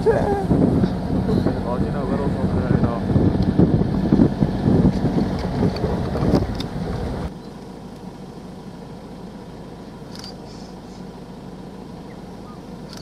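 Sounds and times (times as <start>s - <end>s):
wind buffeting microphone: 0.0s - 7.3s
vehicle driving: 0.0s - 13.0s
vehicle engine idling: 0.0s - 13.0s
faint short chirp: 10.1s - 11.0s.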